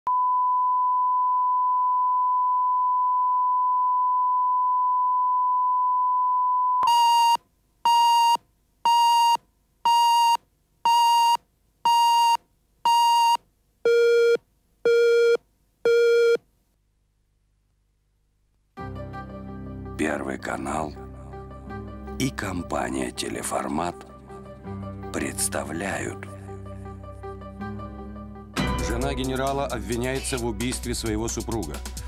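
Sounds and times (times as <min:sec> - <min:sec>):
countdown beeps: 0:06.8 - 0:16.4.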